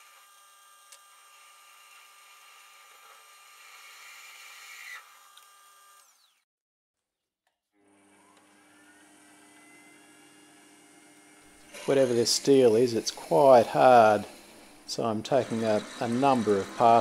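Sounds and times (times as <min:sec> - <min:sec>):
metal lathe drilling steel: 0:11.6 - 0:17.0.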